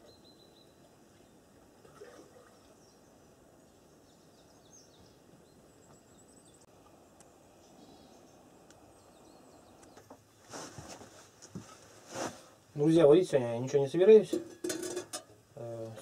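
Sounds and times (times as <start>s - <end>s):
faint high bird chirps: 0.0s - 1.4s.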